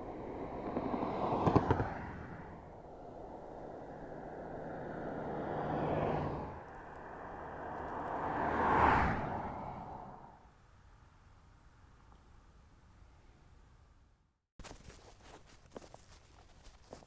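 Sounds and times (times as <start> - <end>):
cars passing on highway: 0.0 - 11.8.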